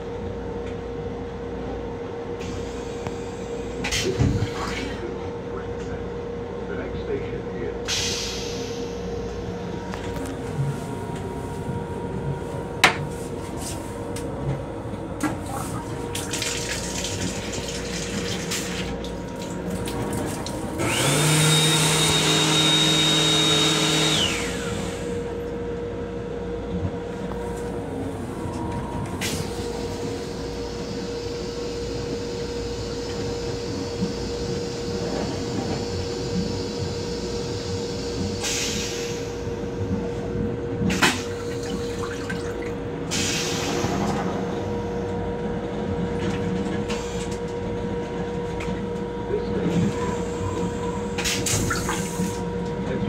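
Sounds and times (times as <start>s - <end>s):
train hum: 0.0s - 53.0s
motor whine: 20.6s - 25.6s.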